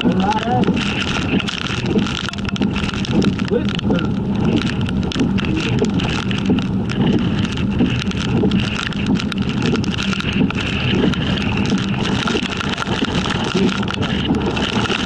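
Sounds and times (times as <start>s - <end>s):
vehicle driving on wet road: 0.0s - 15.0s
wind noise on microphone: 0.0s - 15.0s.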